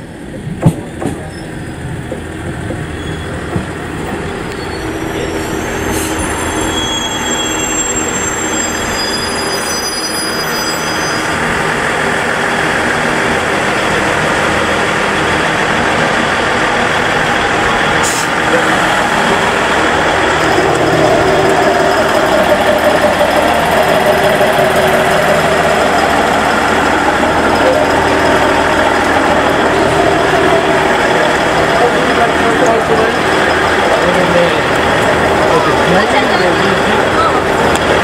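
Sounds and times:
diesel railcar rumbling: 0.0s - 38.0s
high brake squeals: 1.2s - 1.8s, 2.9s - 3.5s, 4.5s - 11.5s.

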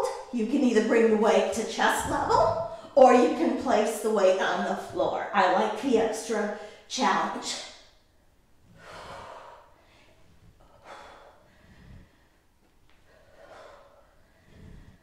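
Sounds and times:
woman breathing out forcefully: 8.7s - 12.4s.

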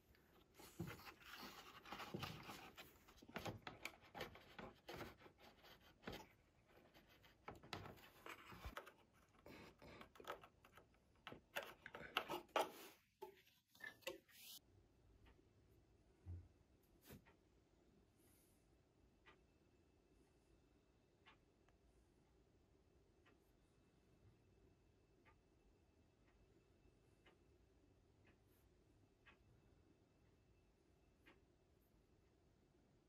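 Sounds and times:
soft clicks and taps: 0.1s - 14.6s.

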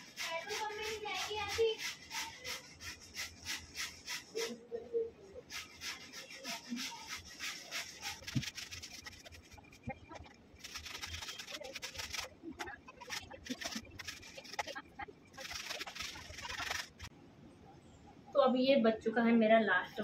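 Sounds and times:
cucumber grated on metal grater: 0.0s - 4.5s, 5.5s - 9.7s, 10.6s - 12.3s.

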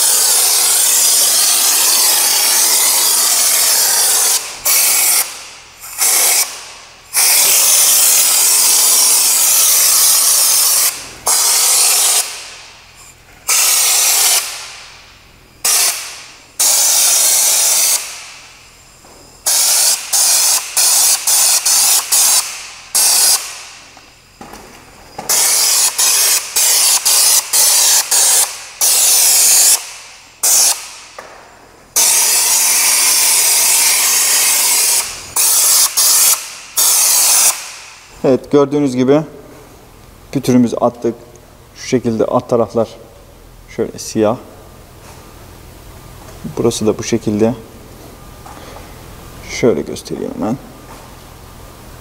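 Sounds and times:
spray gun hissing in bursts: 0.0s - 24.4s, 25.1s - 31.2s, 32.0s - 38.2s.

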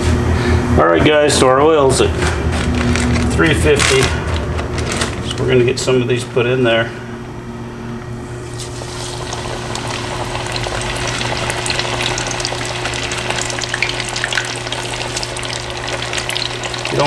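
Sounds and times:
oil sizzling and popping: 8.5s - 17.0s.

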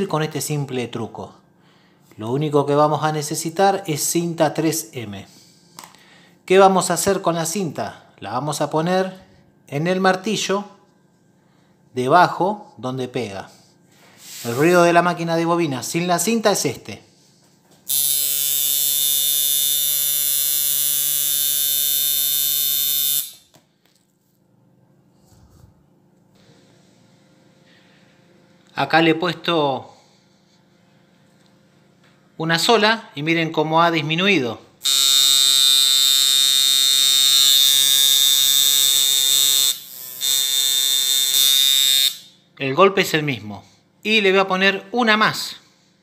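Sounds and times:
tattoo machine buzzing: 17.9s - 23.6s, 34.8s - 42.4s.

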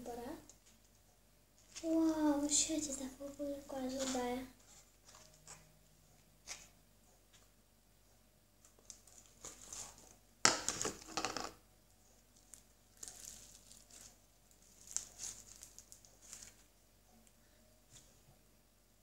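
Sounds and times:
slime with beads crackling: 12.3s - 16.7s.

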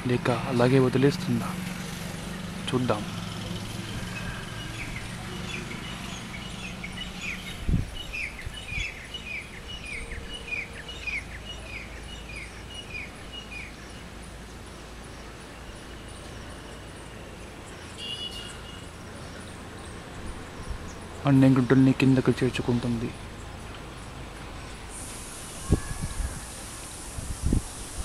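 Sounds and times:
bird chirping: 1.9s - 26.6s.

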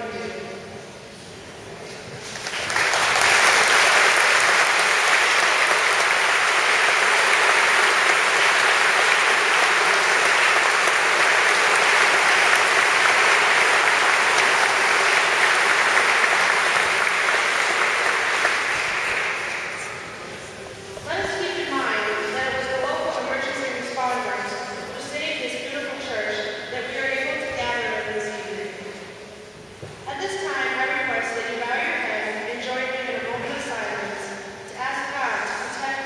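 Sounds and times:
audience applauding: 2.2s - 20.6s.

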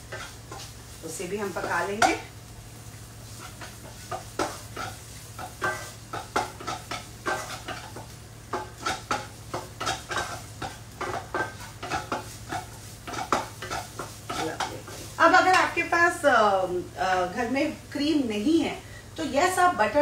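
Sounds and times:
wooden spatula scraping a pan: 0.0s - 2.2s, 3.2s - 15.7s
light sizzling: 0.0s - 20.0s.

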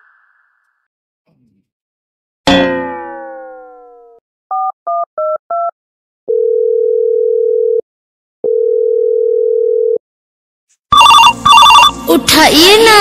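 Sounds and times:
phone ringback tones: 6.3s - 7.8s, 8.5s - 10.0s, 10.9s - 12.0s.

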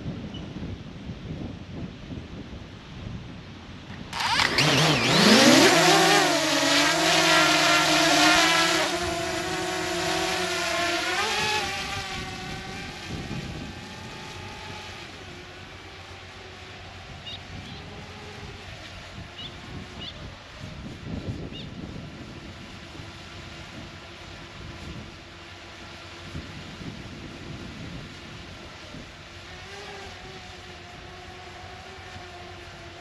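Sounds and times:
vehicle engine revving: 4.0s - 18.6s.

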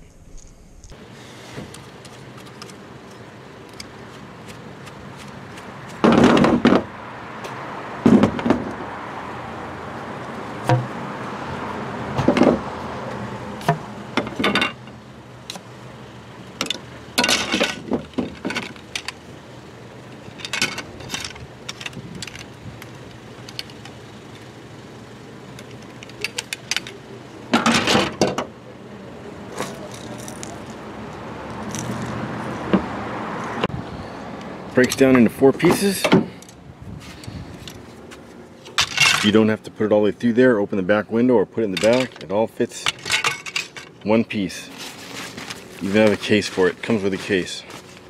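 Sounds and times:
fishing rod clicks and rattles: 20.3s - 22.6s.

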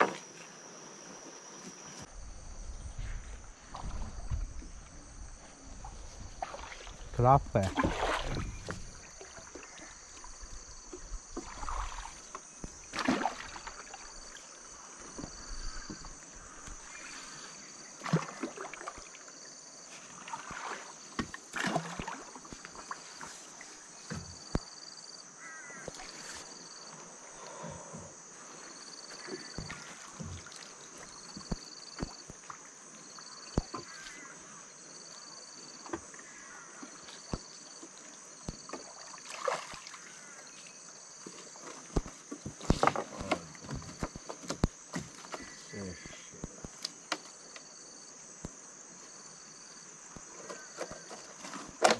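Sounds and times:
water splashing and dripping: 5.7s - 16.8s, 18.0s - 19.3s, 20.1s - 23.2s, 29.1s - 34.1s, 36.8s - 40.4s.

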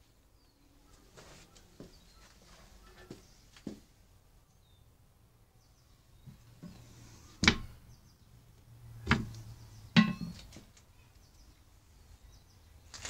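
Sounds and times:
sharp knocks: 7.4s - 7.8s, 10.0s - 10.5s.

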